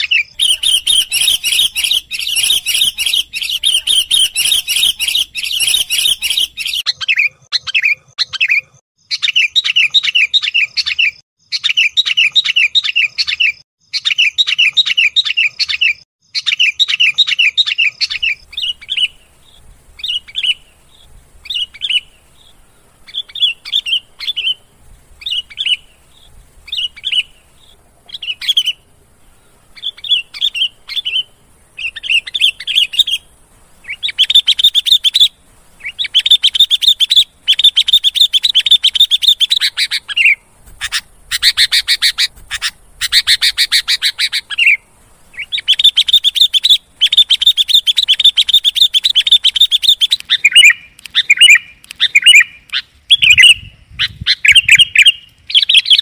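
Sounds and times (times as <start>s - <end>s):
bird chattering calls: 0.0s - 56.0s.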